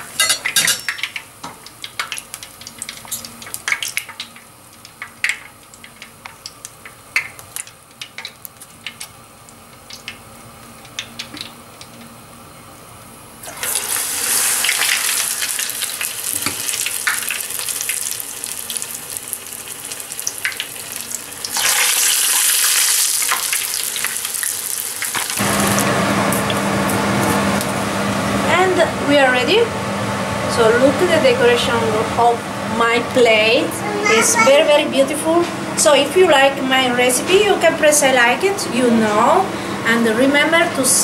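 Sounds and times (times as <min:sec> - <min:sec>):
hissing sizzle of frying oil: 0:00.0 - 0:30.4.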